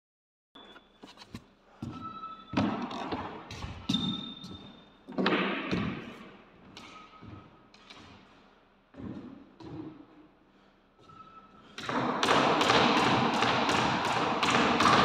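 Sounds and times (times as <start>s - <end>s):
shoes squeaking on wooden floor: 0.6s - 5.1s.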